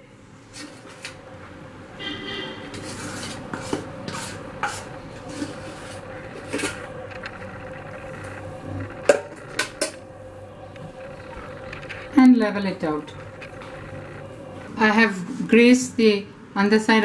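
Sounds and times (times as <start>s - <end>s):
spoon scraping metal pan: 2.6s - 6.9s.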